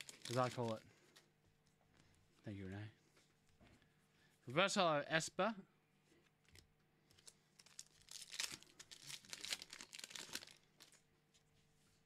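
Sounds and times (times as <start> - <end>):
foil wrapper crinkling and tearing: 0.0 - 0.8, 7.2 - 11.0.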